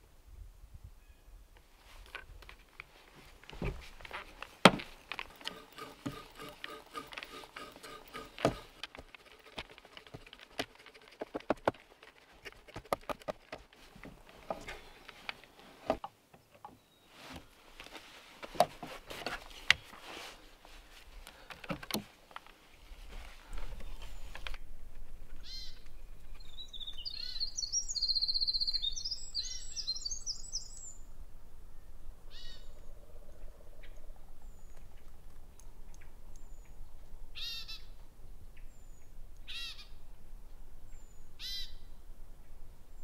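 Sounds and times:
auger bit crunching wood: 3.4s - 16.7s, 21.1s - 24.6s
sharp wooden knocks and clicks: 4.6s - 14.8s, 21.4s - 22.1s.

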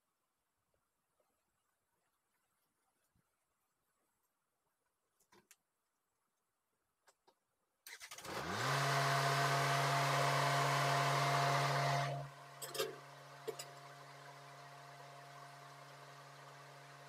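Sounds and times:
motor humming: 8.2s - 17.0s.

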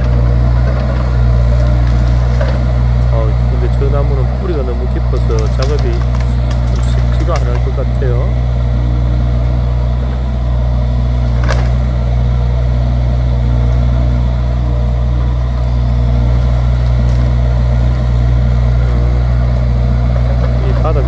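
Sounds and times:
diesel engine running: 0.0s - 21.0s
branches cracking: 0.1s - 3.0s, 5.1s - 7.7s, 11.2s - 12.0s, 16.4s - 20.7s.

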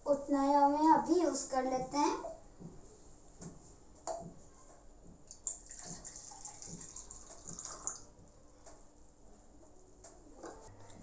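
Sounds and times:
juice trickling into glass: 5.4s - 8.1s.

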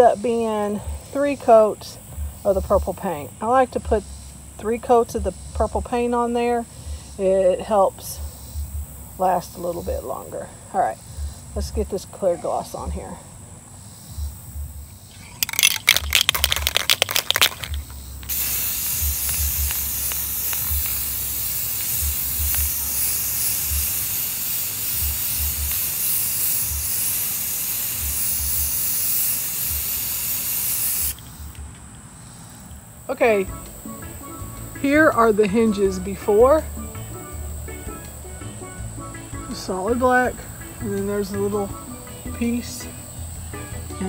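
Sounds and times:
spray paint hissing: 0.0s - 10.3s, 13.8s - 32.6s, 33.4s - 44.0s
aerosol can rattling: 15.1s - 31.3s.

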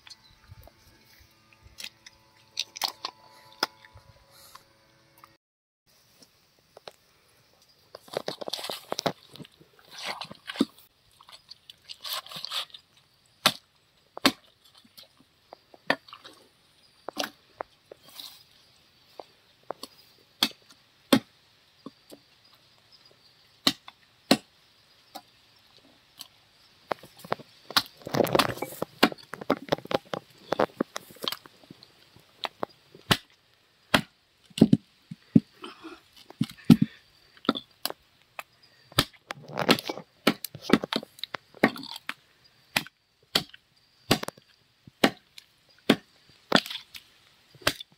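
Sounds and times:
cleaver chopping on wooden block: 44.1s - 44.3s, 45.0s - 45.2s, 45.9s - 46.7s.

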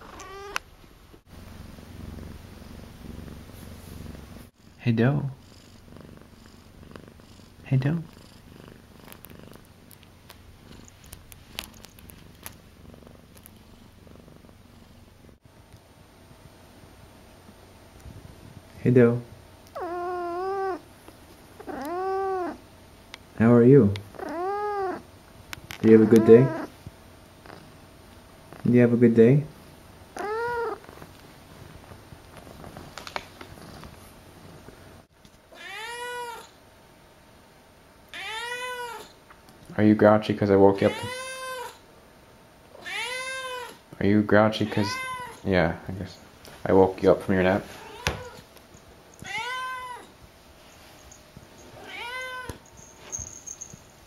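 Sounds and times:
kitten meowing: 0.0s - 0.6s, 19.8s - 20.8s, 21.6s - 22.6s, 24.2s - 25.0s, 26.0s - 26.7s, 30.2s - 30.8s, 35.5s - 36.5s, 38.2s - 39.1s, 40.9s - 41.8s, 42.8s - 43.8s, 44.7s - 45.4s, 49.2s - 50.1s, 51.8s - 52.6s
cat purring: 1.3s - 15.4s, 18.0s - 20.9s, 21.5s - 22.6s, 23.5s - 35.1s.

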